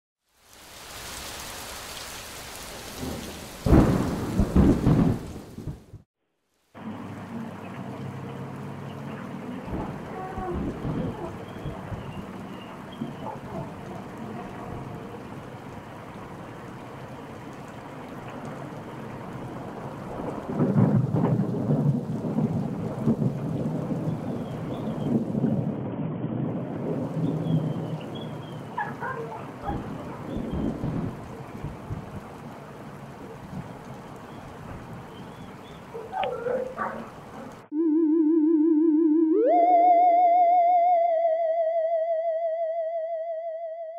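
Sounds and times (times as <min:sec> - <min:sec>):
rain hissing: 0:00.2 - 0:25.8, 0:26.8 - 0:37.7
thunderclap rumbling: 0:02.5 - 0:06.0, 0:07.2 - 0:37.7.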